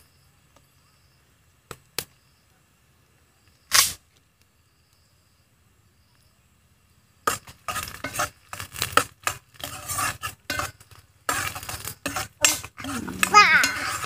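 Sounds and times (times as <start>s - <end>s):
metal spoon scraping frying pan: 7.3s - 14.0s.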